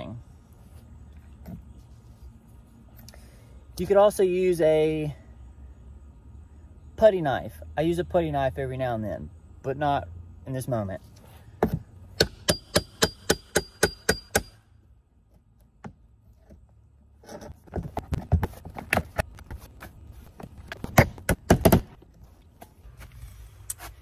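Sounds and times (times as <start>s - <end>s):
hammer striking metal pry bar: 11.6s - 14.6s
wood siding being pried loose: 20.6s - 22.0s.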